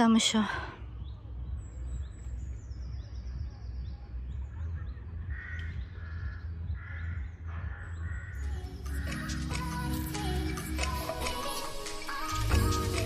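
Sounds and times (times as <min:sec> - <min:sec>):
crow cawing: 0:05.2 - 0:09.4.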